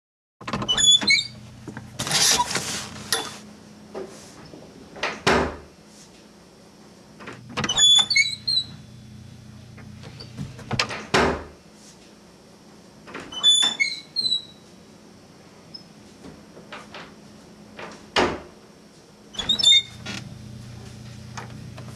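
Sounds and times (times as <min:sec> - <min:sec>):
door shutting thud: 0:07.3 - 0:08.2, 0:10.4 - 0:11.6.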